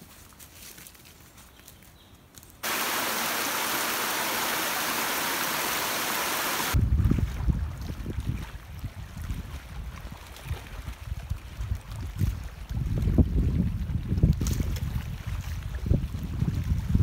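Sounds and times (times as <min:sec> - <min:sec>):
waterfall rushing: 0:02.6 - 0:06.8
wind buffeting microphone: 0:06.7 - 0:17.0.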